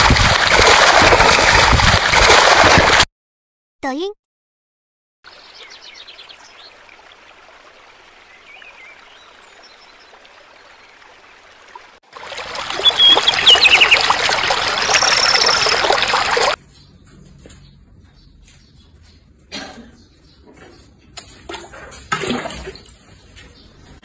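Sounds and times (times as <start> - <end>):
water trickling and splashing: 0.0 - 3.1, 5.3 - 16.6, 21.2 - 24.0
high bird chirps: 12.6 - 17.0.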